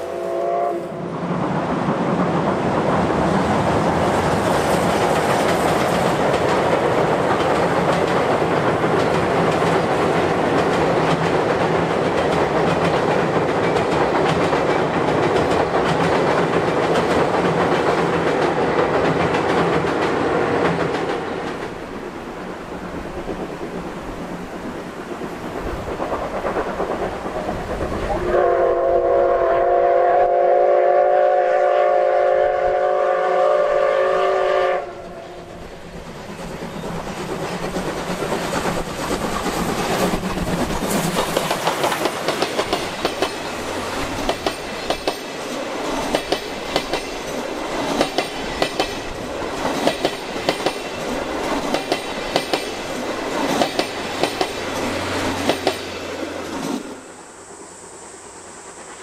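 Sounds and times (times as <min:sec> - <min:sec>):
steam locomotive whistle: 0:00.0 - 0:01.1, 0:28.1 - 0:35.5
train wheels clicking over rail joints: 0:01.2 - 0:28.2, 0:35.0 - 0:57.0.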